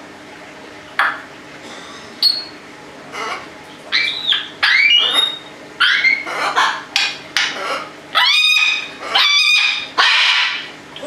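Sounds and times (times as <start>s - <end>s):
parrots squawking and whistling: 3.1s - 11.0s.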